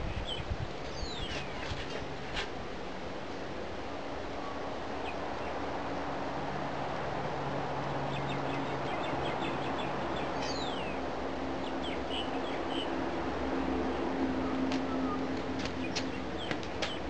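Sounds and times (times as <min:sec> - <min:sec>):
steady rushing noise: 0:00.0 - 0:17.0
birds chirping: 0:00.1 - 0:02.2, 0:07.8 - 0:17.0.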